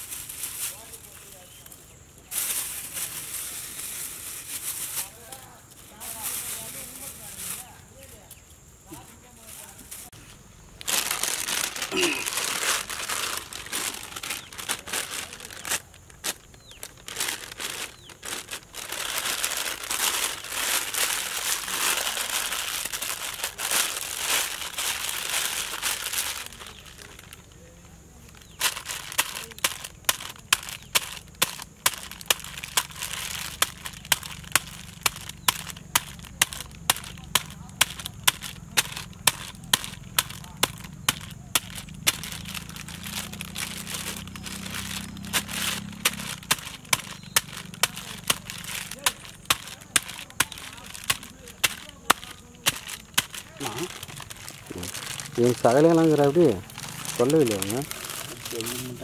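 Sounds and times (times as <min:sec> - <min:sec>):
plastic bag crinkling: 0:00.0 - 0:08.0, 0:08.9 - 0:59.0
stone pounding bag on rock: 0:45.2 - 0:53.7.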